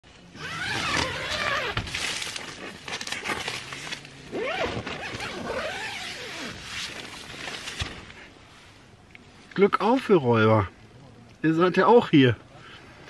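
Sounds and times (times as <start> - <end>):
tent zipper unzipping: 0.4 - 1.8, 4.3 - 7.0
tent fabric rustling: 0.4 - 8.8.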